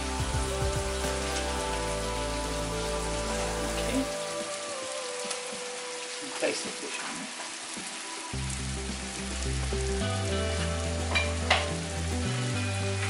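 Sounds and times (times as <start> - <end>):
fish sizzling in a frying pan: 0.0 - 13.0
low background music: 0.0 - 13.0.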